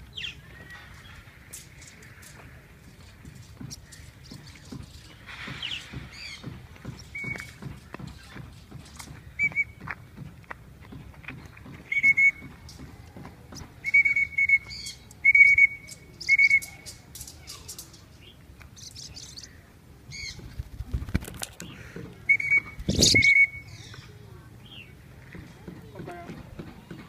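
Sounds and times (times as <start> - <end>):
whistle blasts: 11.9 - 12.4, 13.8 - 16.7
parrots chirping: 22.3 - 23.8.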